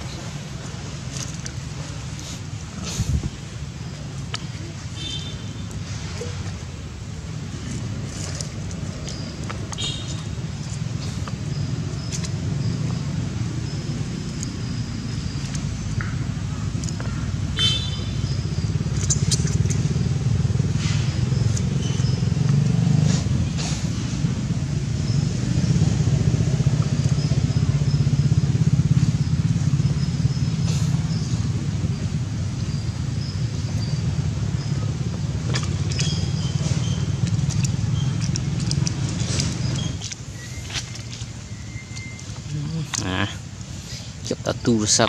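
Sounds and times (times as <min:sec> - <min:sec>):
faint high squeaks and clicks: 0:35.5 - 0:43.2.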